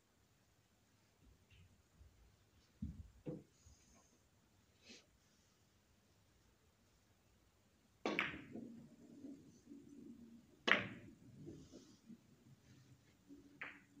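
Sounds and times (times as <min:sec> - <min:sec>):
cue striking ball: 0:08.0 - 0:09.4, 0:10.6 - 0:11.1, 0:13.6 - 0:13.9
billiard balls clicking: 0:08.0 - 0:11.5, 0:13.3 - 0:14.0
balls rolling on cloth: 0:08.0 - 0:14.0.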